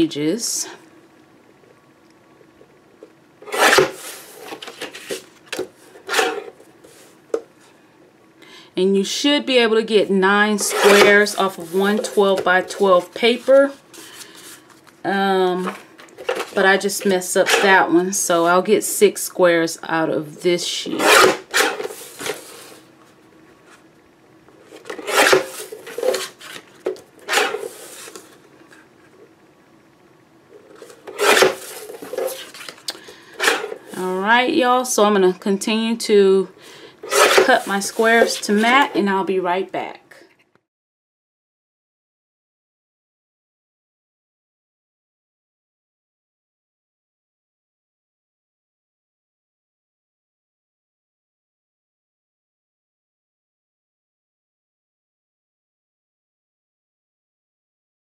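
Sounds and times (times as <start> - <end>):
paper trimmer blade slicing: 3.5 - 5.1, 10.6 - 11.3, 21.0 - 22.4, 24.8 - 26.6, 27.3 - 28.2, 31.0 - 32.8, 33.4 - 33.8, 37.0 - 38.8
paper sliding and rustling: 3.5 - 7.2, 21.6 - 22.8, 24.8 - 26.7, 27.3 - 28.4, 30.8 - 32.8, 33.4 - 33.8, 37.0 - 38.9.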